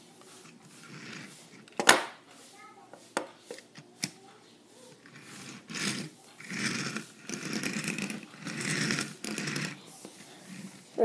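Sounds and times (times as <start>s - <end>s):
toy train wheels rolling on wood: 0.2s - 1.8s, 4.8s - 11.0s.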